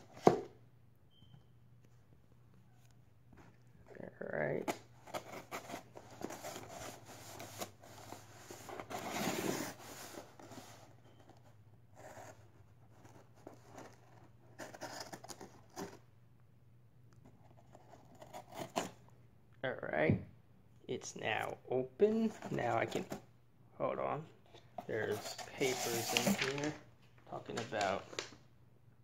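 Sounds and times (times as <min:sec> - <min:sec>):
cardboard rustling: 0:04.7 - 0:16.1, 0:22.2 - 0:23.2, 0:24.6 - 0:28.4.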